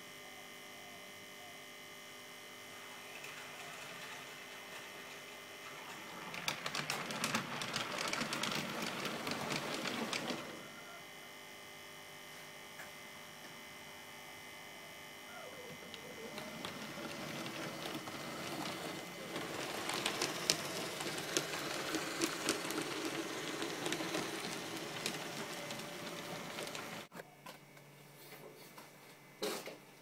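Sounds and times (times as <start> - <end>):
model train whirring on track: 2.7 - 10.7, 15.8 - 27.1
clicks from rails: 3.1 - 10.6.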